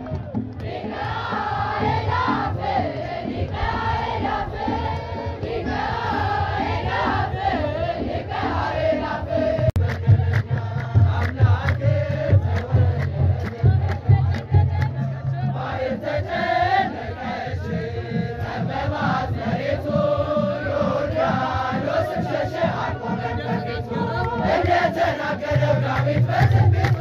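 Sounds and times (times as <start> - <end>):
hand claps: 0.0 - 1.2, 9.8 - 15.0, 25.5 - 27.0
drum beat: 0.0 - 27.0
group of voices chanting: 0.2 - 27.0.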